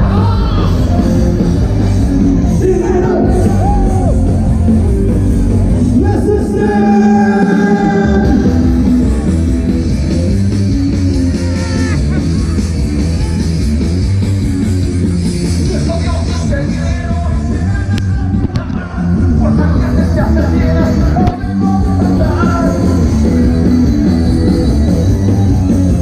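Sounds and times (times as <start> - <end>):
live rock band playing: 0.0 - 26.0
person singing: 6.4 - 8.8.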